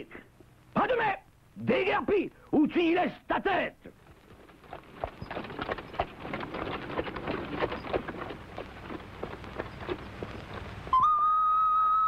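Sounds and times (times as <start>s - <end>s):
horse hooves clip-clopping: 3.9s - 11.0s.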